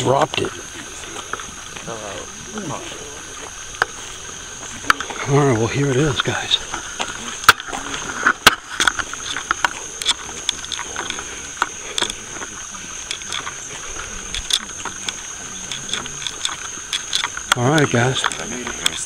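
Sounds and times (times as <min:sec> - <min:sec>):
night insects chirping: 0:00.0 - 0:19.0
footsteps scuffing on driveway: 0:00.6 - 0:15.8
sharp clicks: 0:08.4 - 0:19.0.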